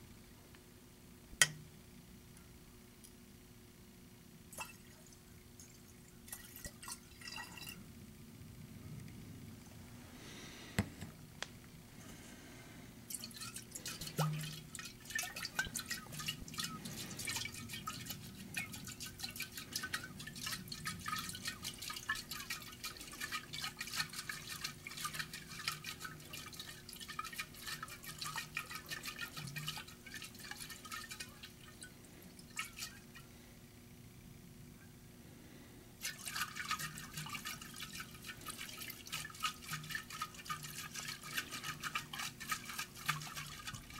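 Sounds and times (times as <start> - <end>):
liquid sloshing in glass flask: 4.5 - 7.8, 13.1 - 33.2, 36.0 - 43.9.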